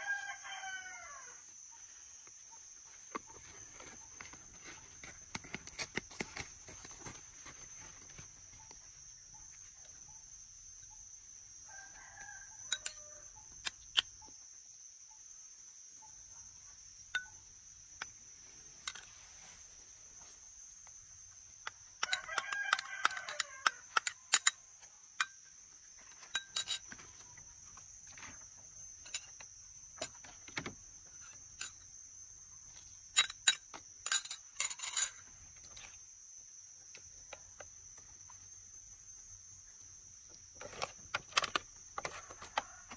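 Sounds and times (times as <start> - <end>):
rooster crowing: 0.0 - 1.4, 11.7 - 13.4, 22.0 - 24.0.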